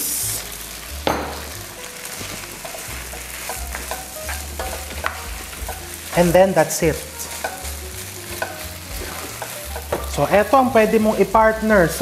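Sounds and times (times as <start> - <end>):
rice sizzling in a hot pan: 0.0 - 12.0
spatula stirring rice: 2.0 - 11.3.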